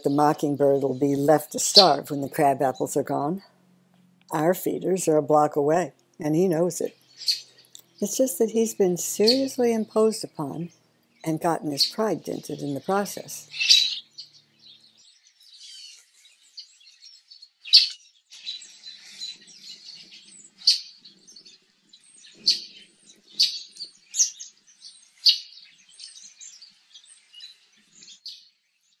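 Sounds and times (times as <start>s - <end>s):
high twittering songbirds: 0.0s - 29.0s.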